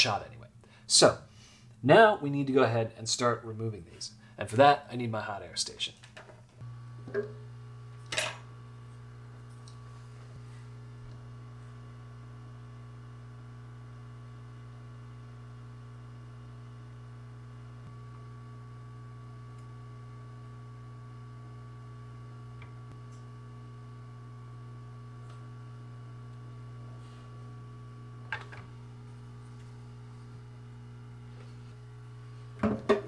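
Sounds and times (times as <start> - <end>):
hot air station humming: 24.8 - 33.0.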